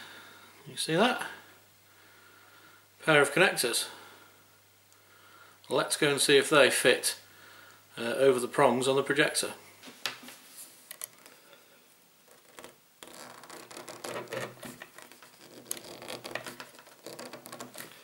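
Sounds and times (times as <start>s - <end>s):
faint scratching: 12.3s - 18.0s.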